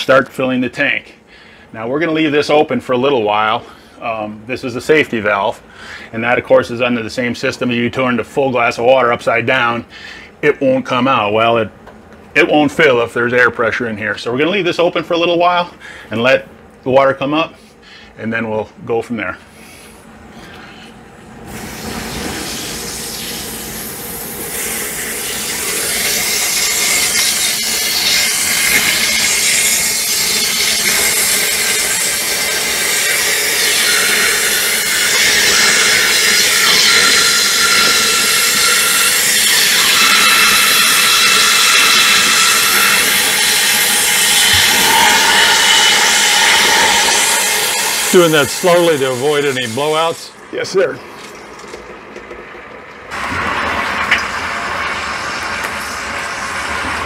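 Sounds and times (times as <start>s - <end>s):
air hissing out of valve: 21.5s - 50.4s, 53.1s - 57.0s.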